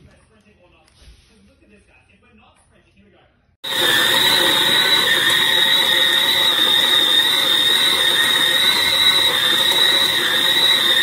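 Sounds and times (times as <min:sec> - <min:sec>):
high-pitched motor whine: 0:03.6 - 0:11.0
stand mixer kneading dough: 0:03.6 - 0:11.0.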